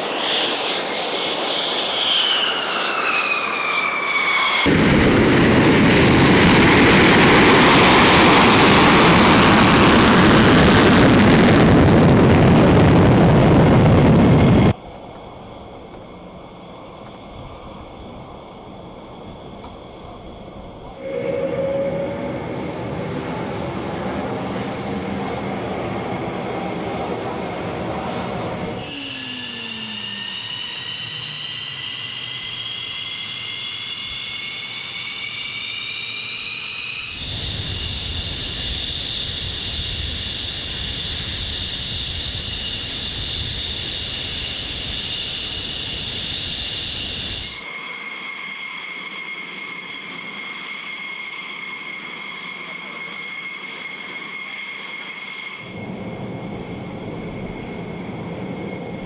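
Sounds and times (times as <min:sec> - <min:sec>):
jet turbine whine: 0:00.0 - 0:59.0
deep jet rumble: 0:03.4 - 0:28.8, 0:52.8 - 0:59.0.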